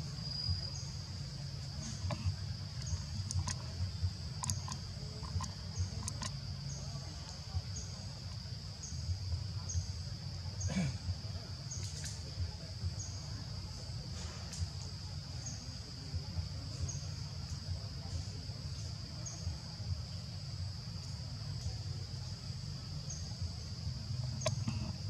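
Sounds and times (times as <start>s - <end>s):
insect chirps: 0.0s - 25.0s
faint clicks: 4.4s - 6.4s.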